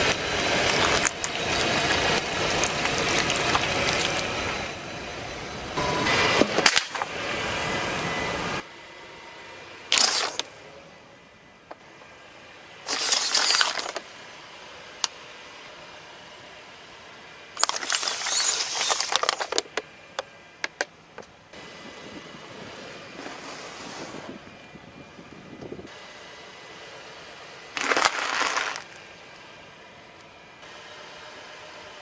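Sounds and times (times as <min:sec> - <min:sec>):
tyre crushing biscuits: 0:12.9 - 0:14.0, 0:27.8 - 0:29.0
tyre crushing plastic bottles: 0:12.9 - 0:14.0, 0:17.6 - 0:19.6, 0:27.8 - 0:29.0.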